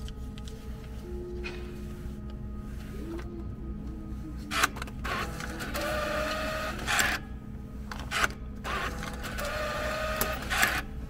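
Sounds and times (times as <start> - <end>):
bill acceptor whirring: 4.5 - 11.0.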